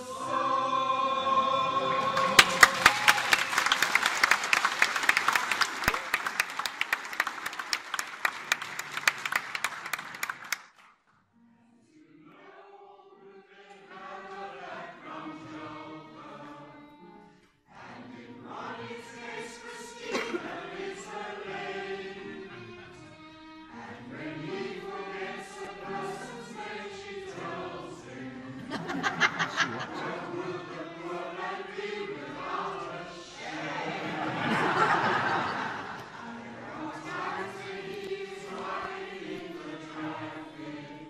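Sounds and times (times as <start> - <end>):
choir singing: 0.0 - 5.8, 11.8 - 41.0
audience applause: 1.8 - 10.8, 33.5 - 36.4.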